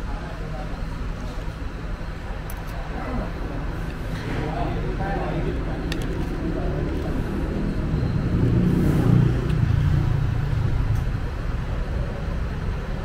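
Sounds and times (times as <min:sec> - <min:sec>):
car passing: 0:07.1 - 0:10.9.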